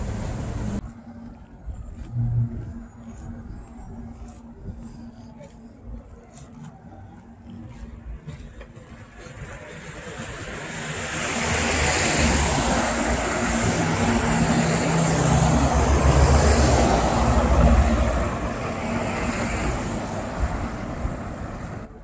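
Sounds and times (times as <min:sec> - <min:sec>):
motor vehicle passing: 0:09.2 - 0:21.9.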